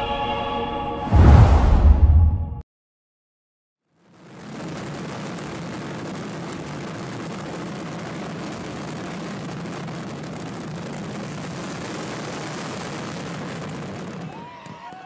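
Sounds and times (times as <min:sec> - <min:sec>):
steady rushing noise: 0:01.0 - 0:02.4.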